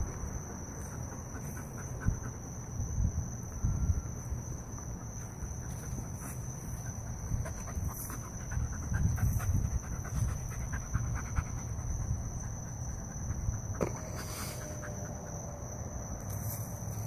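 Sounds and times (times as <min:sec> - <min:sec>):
dog panting: 0:00.4 - 0:02.7, 0:05.0 - 0:15.4.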